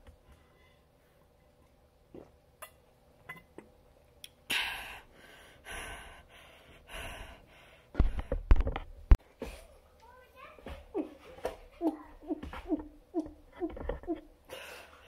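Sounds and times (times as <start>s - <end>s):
person breathing out hard: 4.5s - 8.5s.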